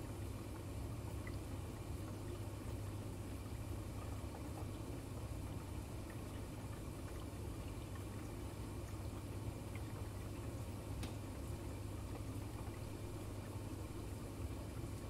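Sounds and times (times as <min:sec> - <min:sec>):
aquarium filter humming: 0:00.0 - 0:15.0
water bubbling and trickling: 0:00.0 - 0:15.0
faint ticks: 0:10.9 - 0:11.2.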